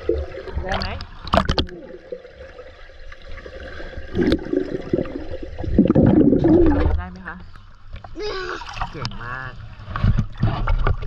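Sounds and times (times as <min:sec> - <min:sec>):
muffled underwater bubbling water: 0:00.0 - 0:07.1.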